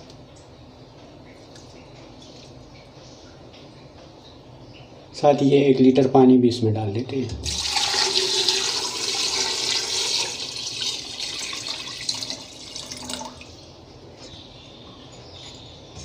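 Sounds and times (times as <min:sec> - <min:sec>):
water pouring into metal pot: 0:07.4 - 0:13.4.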